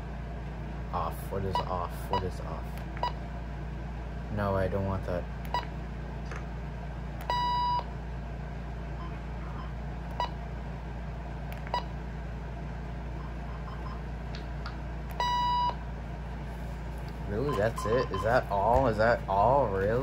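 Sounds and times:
steady low hum: 0.0s - 20.0s
electronic beeps: 13.2s - 14.0s, 15.2s - 15.8s, 17.3s - 18.5s.

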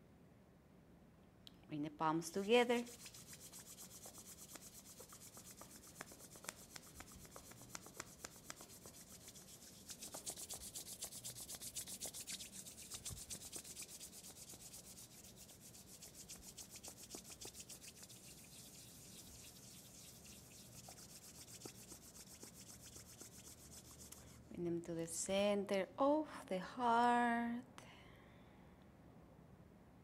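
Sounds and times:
palms rubbing together: 2.4s - 24.5s.

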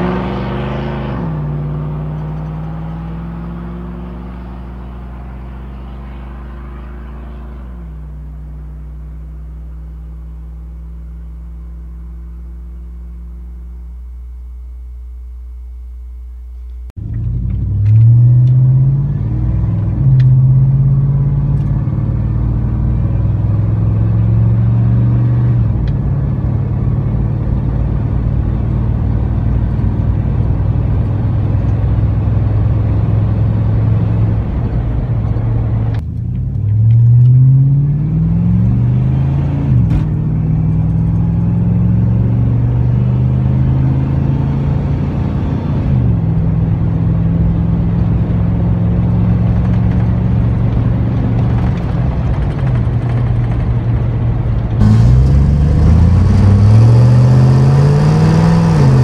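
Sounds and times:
truck accelerating: 0.0s - 12.3s, 17.0s - 59.0s
truck exhaust droning: 17.0s - 59.0s.

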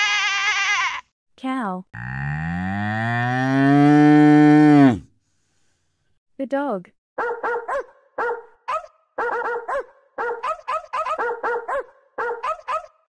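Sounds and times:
dog barking high-pitched: 7.2s - 13.0s.

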